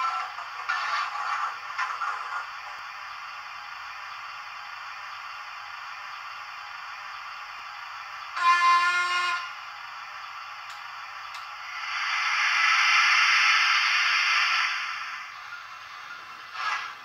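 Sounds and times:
steam whistle blast: 0:08.4 - 0:09.6, 0:16.5 - 0:17.0
steam hiss: 0:11.6 - 0:17.0.

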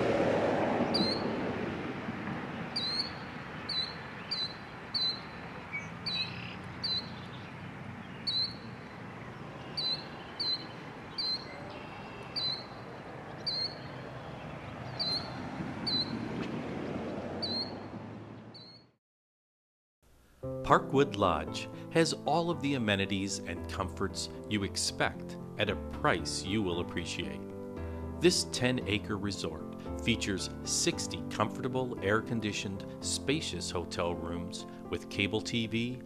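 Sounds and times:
bird chirping: 0:00.9 - 0:01.4, 0:02.6 - 0:16.3, 0:17.4 - 0:19.0.

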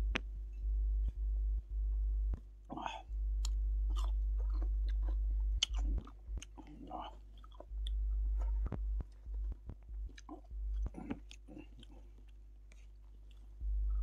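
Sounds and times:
low hum: 0:00.0 - 0:14.0
man chewing food: 0:03.4 - 0:13.6.

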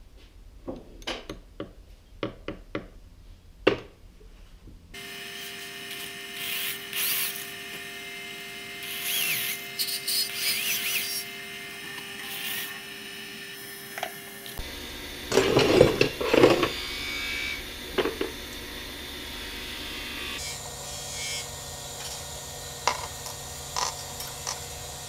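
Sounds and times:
cordless drill running: 0:05.0 - 0:25.0.

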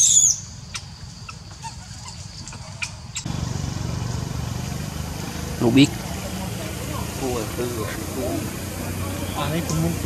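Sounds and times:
engine idling: 0:03.2 - 0:10.0.

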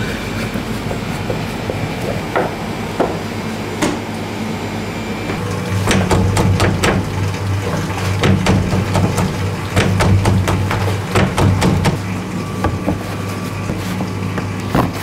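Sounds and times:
machinery hum: 0:00.0 - 0:15.0
knocks and clatter: 0:05.7 - 0:12.0.

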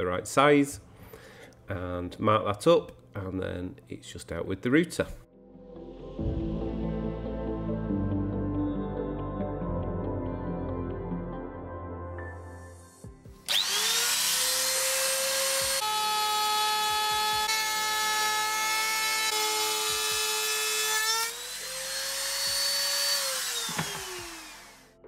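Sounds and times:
router whining while cutting wood: 0:13.5 - 0:25.0.

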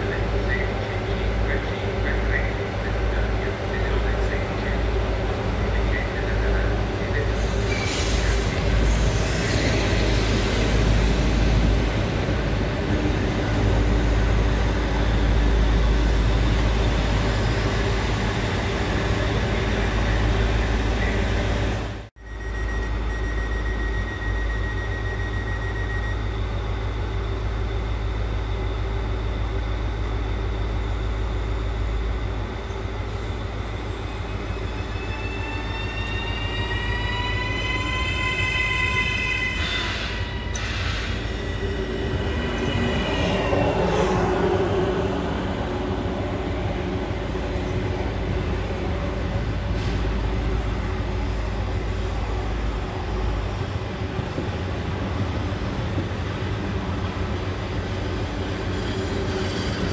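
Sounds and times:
train running along tracks: 0:00.0 - 0:59.9
electric train humming: 0:23.8 - 0:59.9
traction motors whining: 0:32.8 - 0:51.4.

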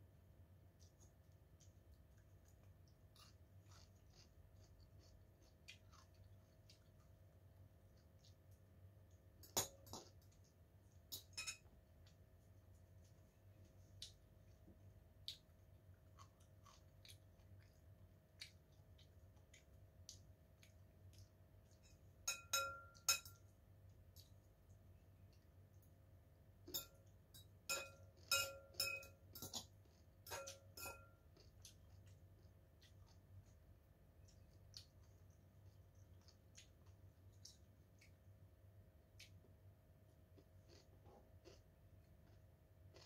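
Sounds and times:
faint chewing clicks: 0:00.6 - 0:22.2, 0:23.3 - 0:43.0.

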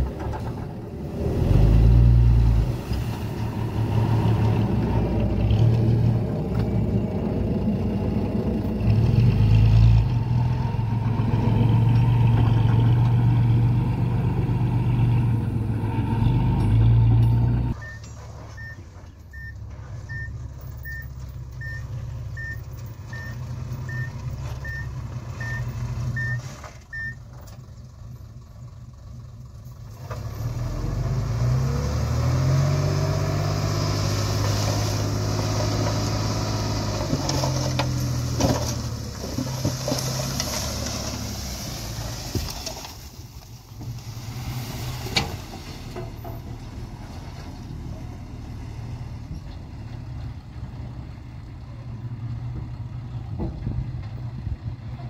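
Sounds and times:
engine revving: 0:00.0 - 0:17.8, 0:30.0 - 0:42.0
diesel truck engine running: 0:00.0 - 0:55.0
soil sliding: 0:00.1 - 0:06.8, 0:31.9 - 0:48.1
reversing alarm beeps: 0:17.8 - 0:20.3, 0:20.9 - 0:27.2.

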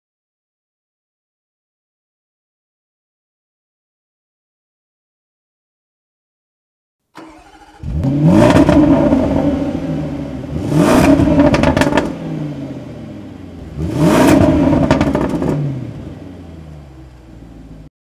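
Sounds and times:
engine revving: 0:07.2 - 0:17.9
exhaust crackles: 0:07.2 - 0:17.9.

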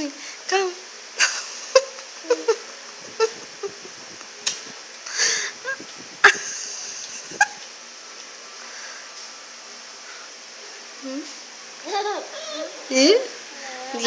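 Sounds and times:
breathy sound: 0:05.1 - 0:05.8.

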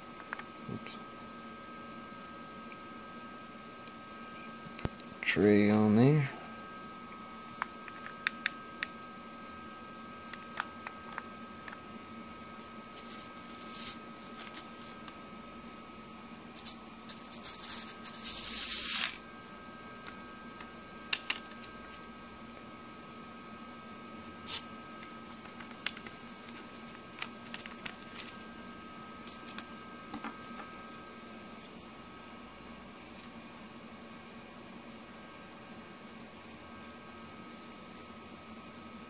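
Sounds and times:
paper rustling: 0:12.9 - 0:15.0.

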